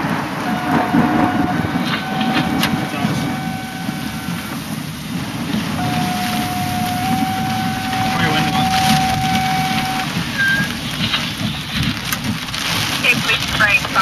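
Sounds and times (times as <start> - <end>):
heavy rain: 0.0 - 14.0
rain clicks: 0.0 - 14.0
wind: 0.0 - 14.0.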